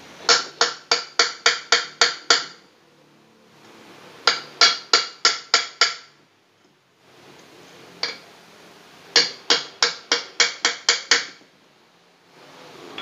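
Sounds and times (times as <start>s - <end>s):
hammer tapping on metal: 0.3s - 2.6s, 4.3s - 6.1s, 9.1s - 11.4s.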